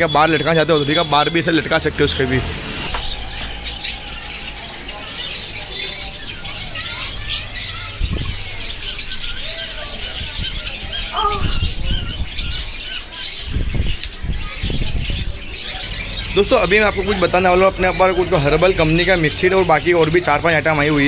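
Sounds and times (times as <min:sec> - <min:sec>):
birds chirping and squawking: 0:00.0 - 0:21.0.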